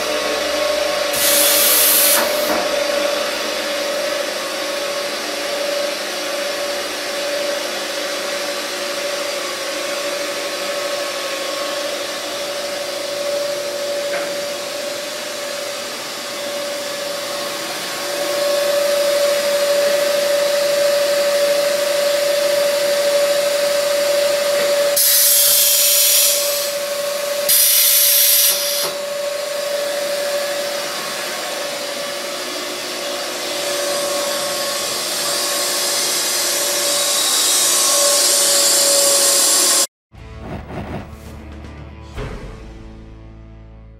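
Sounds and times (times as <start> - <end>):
blender motor hum and whine: 0.0 - 39.9
loud bursts of hiss: 1.1 - 2.6, 25.0 - 26.9, 27.5 - 28.8.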